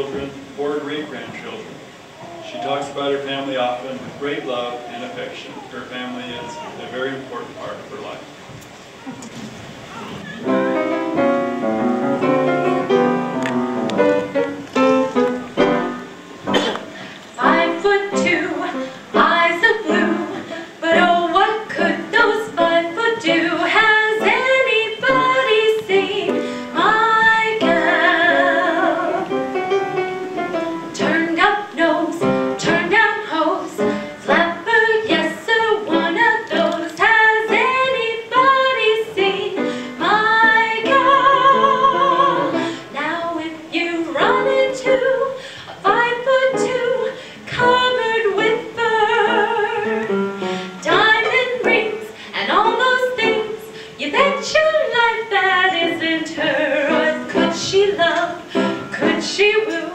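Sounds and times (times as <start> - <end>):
woman singing with vibrato: 17.4 - 29.6, 30.8 - 59.9.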